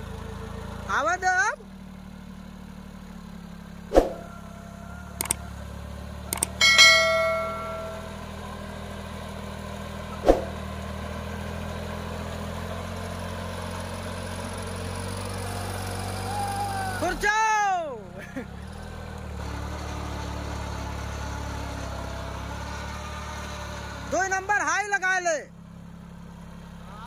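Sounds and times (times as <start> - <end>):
tractor diesel engine running: 0.0 - 27.0
ringing metallic clang: 6.4 - 8.3.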